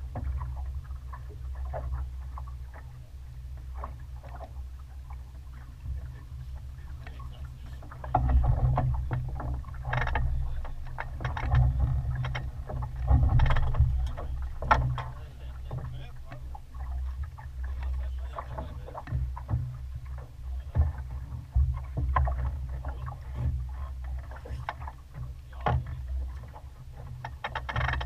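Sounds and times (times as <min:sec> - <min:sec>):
low rumble aboard sailing yacht: 0:00.0 - 0:28.0
clicks and knocks of gear: 0:27.2 - 0:28.0.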